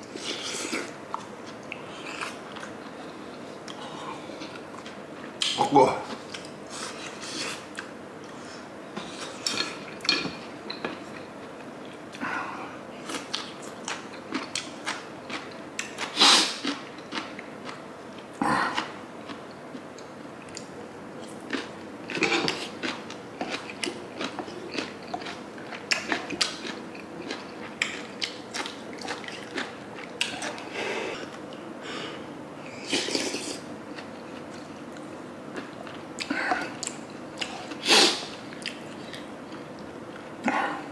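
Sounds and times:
wet chewing: 21.5s - 31.3s.

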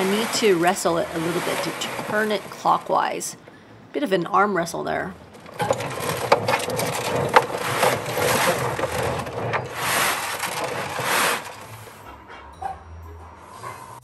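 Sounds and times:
cat litter rattling in plastic drum: 0.0s - 3.2s, 5.2s - 11.8s.

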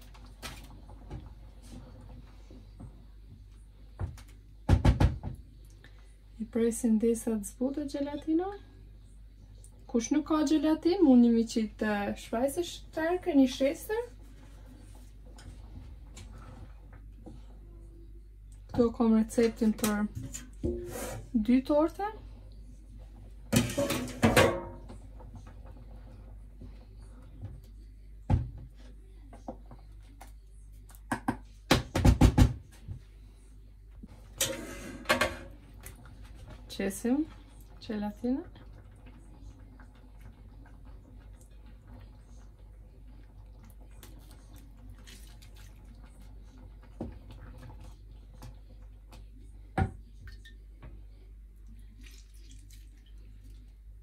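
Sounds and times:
low steady hum: 0.0s - 31.7s, 32.7s - 54.0s
wooden spoon stirring in saucepan: 10.4s - 17.9s, 32.8s - 54.0s
metal saucepan clattering: 23.5s - 24.9s, 34.4s - 35.6s.

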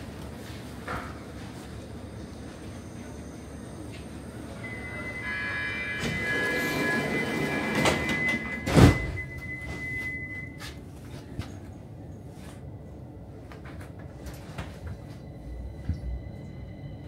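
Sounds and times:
high door warning tone: 4.4s - 10.6s
train doors thudding shut: 5.8s - 9.9s.

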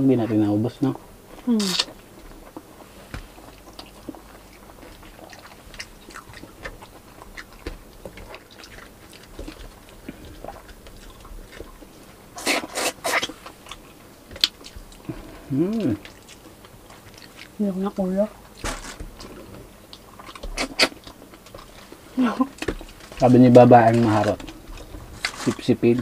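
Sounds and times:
soft chewing: 0.2s - 26.0s
wet mouth clicks: 1.6s - 1.9s, 20.3s - 21.5s
lip smacks: 19.2s - 21.7s.

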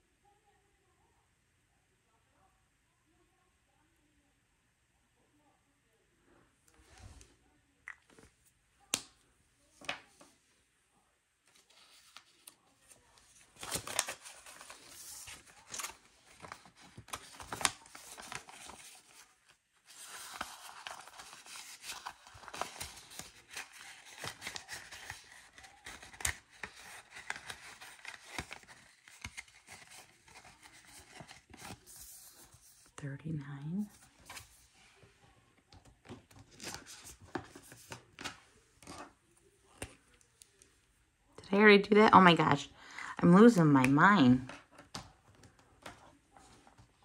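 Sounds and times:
paper banknotes rustling: 11.5s - 33.0s.

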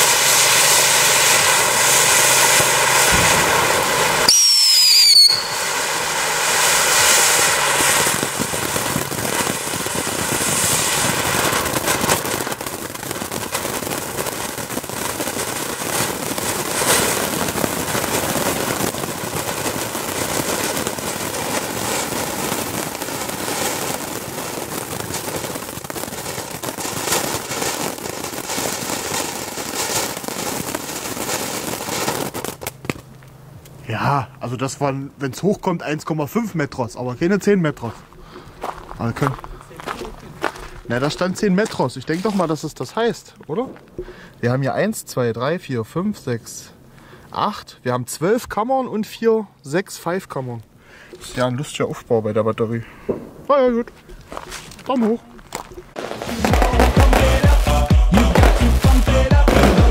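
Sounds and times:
firework sparks hissing and crackling: 0.0s - 34.1s, 37.8s - 44.6s, 53.2s - 59.9s
short falling whistle: 4.3s - 5.7s.

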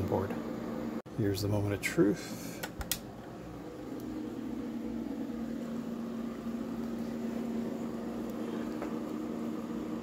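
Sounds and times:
low machine hum: 0.0s - 10.0s.

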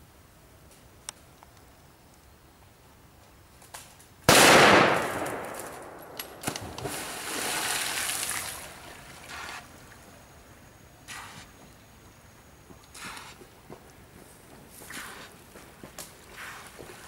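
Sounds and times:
loud splash impact: 6.4s - 8.6s
water splashing: 6.7s - 10.0s.

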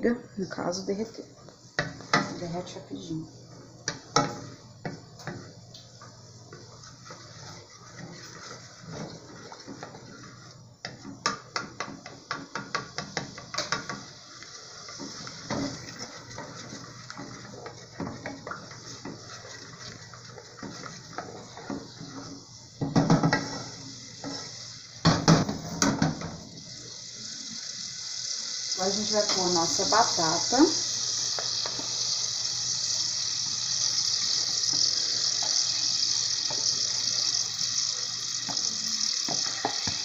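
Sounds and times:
steady high hiss: 0.0s - 40.0s
wooden spoon scraping in pot: 4.1s - 24.7s.

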